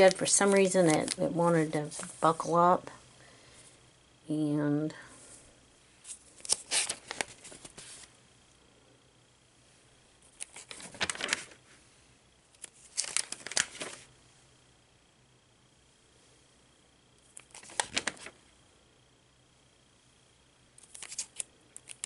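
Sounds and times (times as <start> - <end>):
paper pages turning: 0.0 - 2.3, 6.0 - 8.1, 10.3 - 11.7, 12.6 - 14.1, 17.4 - 18.4, 20.8 - 22.0.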